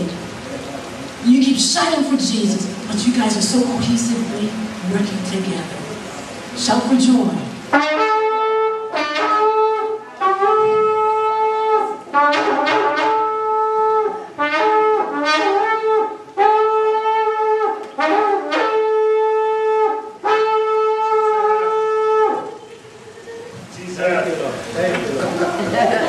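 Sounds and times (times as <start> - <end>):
shofar blasts: 7.6 - 22.9.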